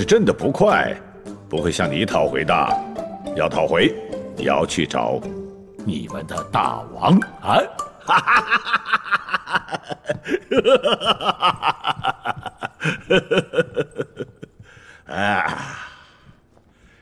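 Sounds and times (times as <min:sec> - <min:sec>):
man laughing heartily: 0:08.0 - 0:15.8.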